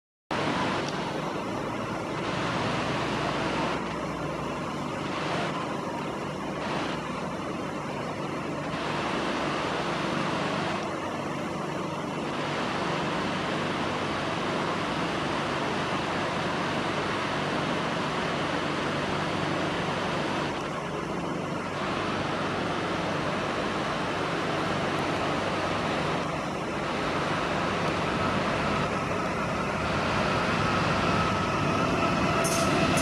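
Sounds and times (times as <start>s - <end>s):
distant vehicle engines rumbling: 0.3s - 33.0s.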